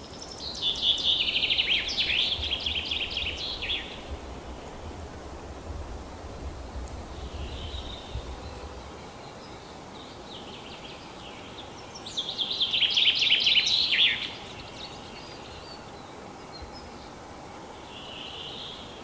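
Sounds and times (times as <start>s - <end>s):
other birds singing: 0.0s - 4.8s, 7.1s - 17.2s.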